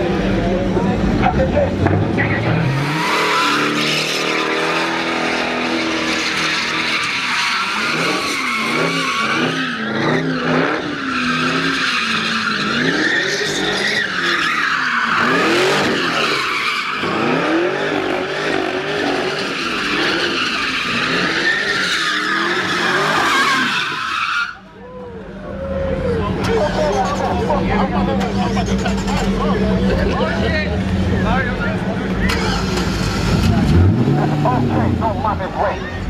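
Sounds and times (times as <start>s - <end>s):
car engine revving: 0.0s - 24.1s, 25.4s - 36.0s
tyres screeching: 1.9s - 25.0s, 31.1s - 34.7s.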